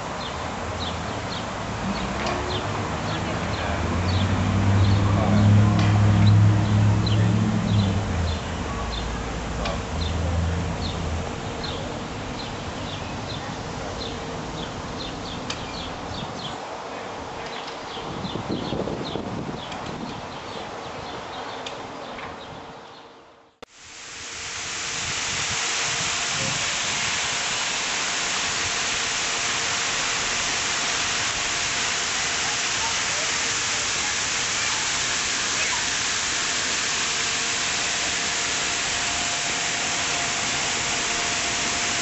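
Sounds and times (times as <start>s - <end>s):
low engine rumble: 0.0s - 17.1s
fountain water splashing: 0.0s - 18.0s, 23.7s - 42.0s
outdoor background noise: 0.0s - 42.0s.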